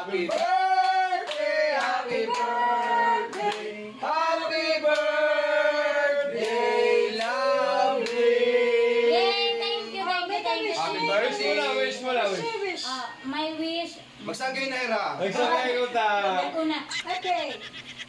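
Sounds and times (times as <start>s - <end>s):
group singing: 0.0s - 10.1s
hand claps: 0.3s - 3.6s.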